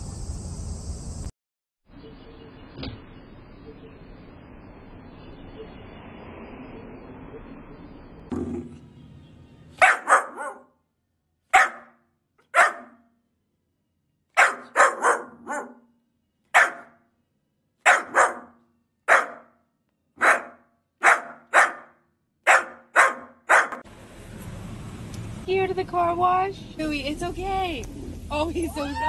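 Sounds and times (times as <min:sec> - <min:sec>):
dog barking: 0:09.8 - 0:10.7, 0:11.5 - 0:13.1, 0:14.4 - 0:15.9, 0:16.6 - 0:17.0, 0:17.8 - 0:19.6, 0:20.2 - 0:23.8.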